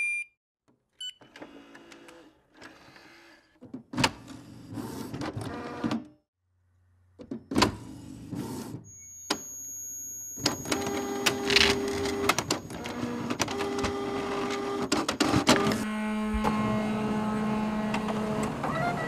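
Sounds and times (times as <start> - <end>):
printer clicking and whirring: 10.4 - 15.8
printer motor hum: 10.7 - 19.0.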